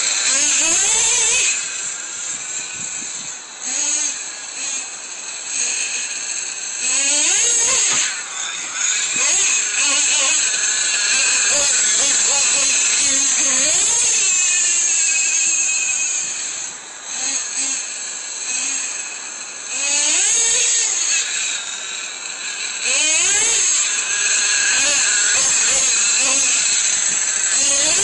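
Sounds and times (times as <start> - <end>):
rc truck engine revving: 0.0 - 16.6, 22.7 - 28.0.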